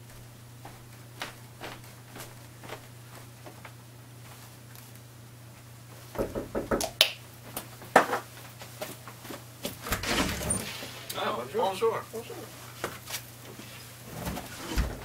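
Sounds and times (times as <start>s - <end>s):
knocking on wooden door: 6.2s - 6.9s.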